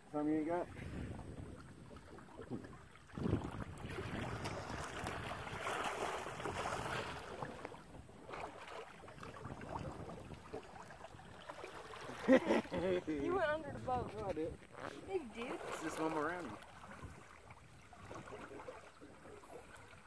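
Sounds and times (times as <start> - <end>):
water sloshing around boat: 0.0 - 20.0
wind buffeting microphone: 0.7 - 8.3, 9.0 - 11.4, 12.7 - 15.6.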